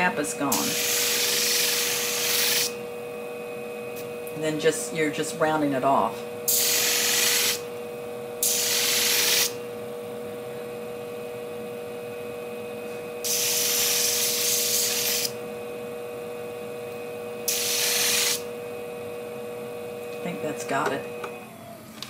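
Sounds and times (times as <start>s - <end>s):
machine motor humming: 0.1s - 22.0s
steel grinding on sharpening disc: 0.6s - 2.8s, 13.3s - 15.4s, 17.5s - 18.4s.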